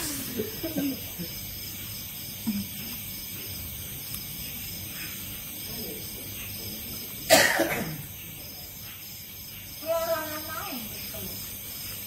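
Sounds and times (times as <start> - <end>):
insects chirping: 0.0 - 12.0
person coughing: 7.3 - 8.0.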